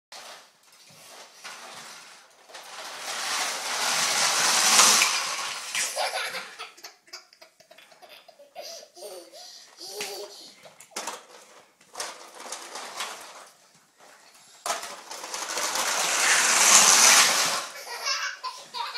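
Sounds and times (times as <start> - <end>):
toy vehicles rattling across tile floor: 0.1 - 18.9
toddler laughing: 5.8 - 10.8, 17.7 - 18.9.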